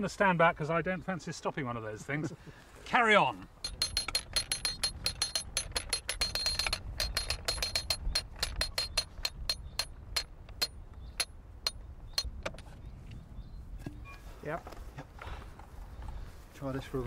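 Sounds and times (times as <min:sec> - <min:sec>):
ratchet clicking with metallic ring: 0:03.6 - 0:12.3.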